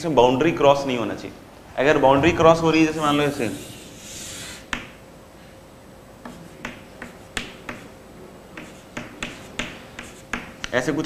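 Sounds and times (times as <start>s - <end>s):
chalk tapping on a blackboard: 4.0s - 5.0s, 6.2s - 10.8s.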